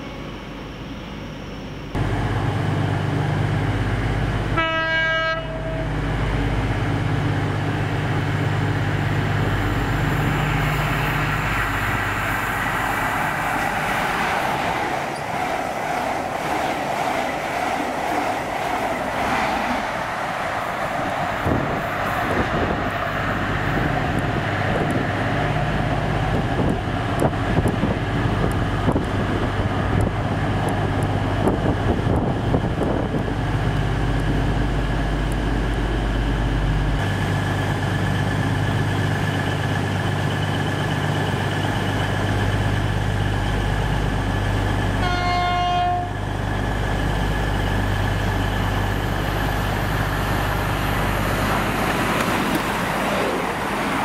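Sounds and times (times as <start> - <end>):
diesel train engine hum: 0.0 - 54.0
train horn: 4.5 - 5.9, 45.0 - 46.2
train wheels clicking on rail joints: 8.2 - 45.0, 46.1 - 54.0.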